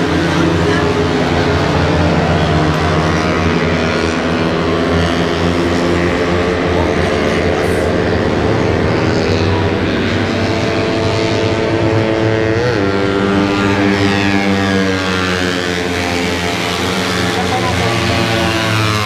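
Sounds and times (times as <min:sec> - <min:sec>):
racing motorcycle engines droning: 0:00.0 - 0:19.0.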